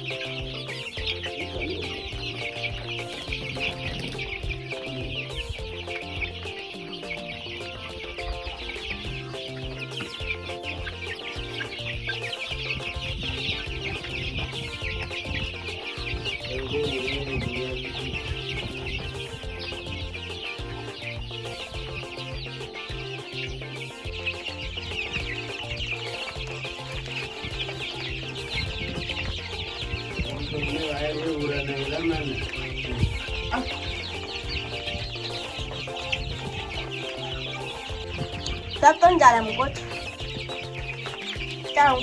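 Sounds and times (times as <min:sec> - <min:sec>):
background music with bass: 0:00.0 - 0:42.0
chicks cheeping: 0:00.0 - 0:42.0.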